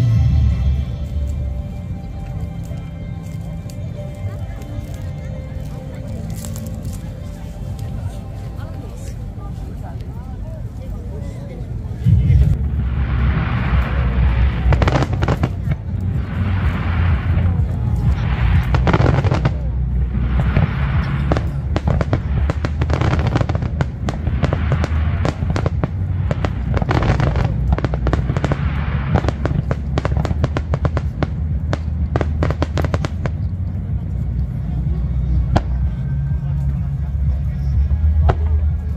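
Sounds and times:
music playing: 0.0 - 10.9, 11.8 - 38.9
fireworks bangs and crackles: 12.0 - 38.9.

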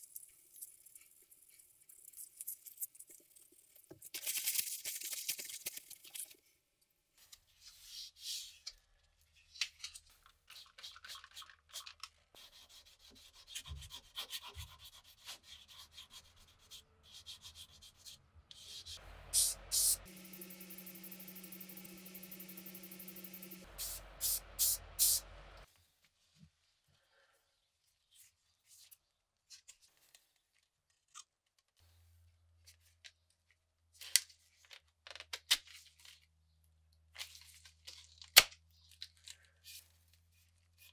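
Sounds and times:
sandpaper scratching steel: 12.4 - 25.3
aerosol spray can hissing: 19.2 - 25.3.

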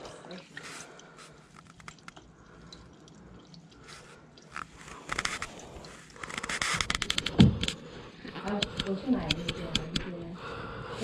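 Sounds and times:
rag rubbing and scraping: 4.6 - 7.7.

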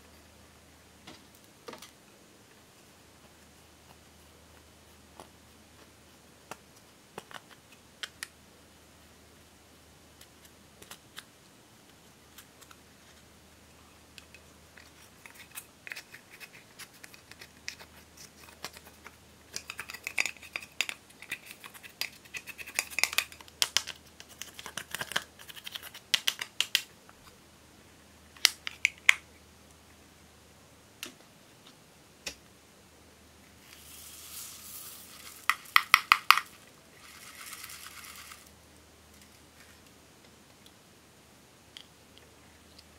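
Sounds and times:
foam beads poured into glass bowl: 33.6 - 35.9, 37.0 - 38.5.

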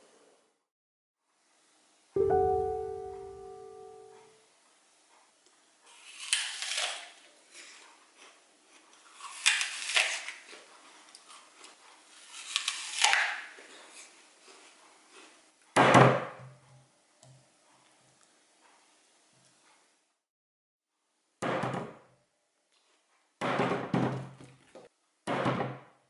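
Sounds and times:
crunchy bites into onion: 6.0 - 7.2, 9.1 - 10.6, 12.2 - 13.6.

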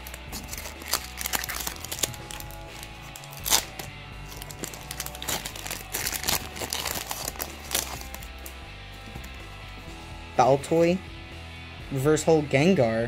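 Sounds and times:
foil wrapper crinkling and tearing: 0.0 - 9.4
background music: 0.0 - 13.0.

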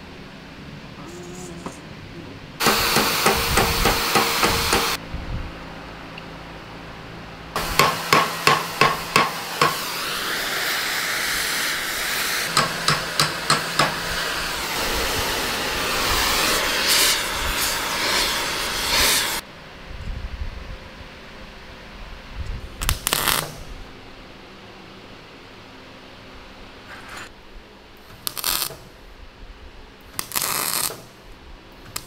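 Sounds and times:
hammer striking steel: 2.6 - 5.0, 7.6 - 9.9, 12.5 - 14.2
steady hiss: 2.6 - 5.0, 7.6 - 19.5.

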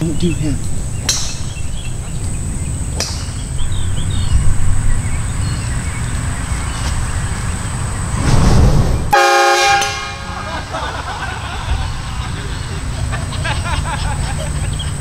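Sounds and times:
loud low rumbling: 7.8 - 9.2
train horn blasting: 9.1 - 10.4.

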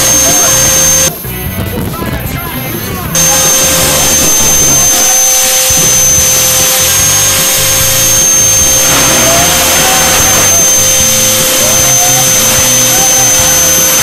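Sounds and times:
electric fan air rush: 0.0 - 14.0
high-pitched fan whine: 0.0 - 14.0.

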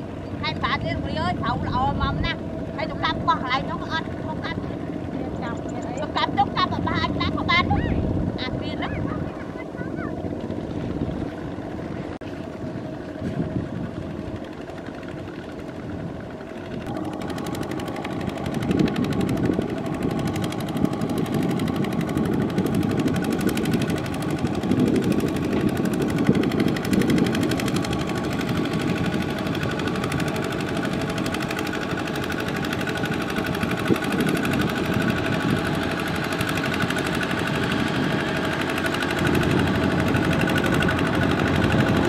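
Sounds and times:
diesel engine chugging: 0.0 - 42.0.

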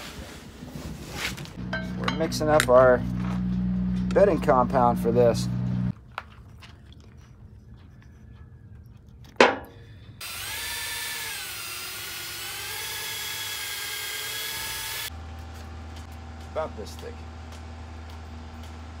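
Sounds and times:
electric drill mixing compound: 10.2 - 15.1.

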